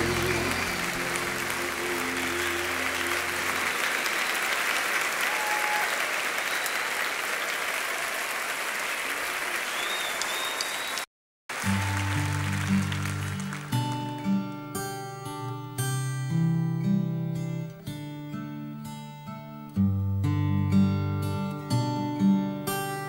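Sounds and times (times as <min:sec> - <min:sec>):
music: 0:00.0 - 0:04.0, 0:11.6 - 0:23.0
crowd applauding: 0:00.0 - 0:15.1.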